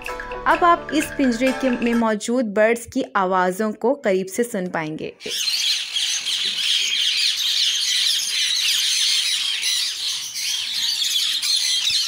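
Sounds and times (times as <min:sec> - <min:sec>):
parrots chirping and screeching: 0:05.2 - 0:12.0.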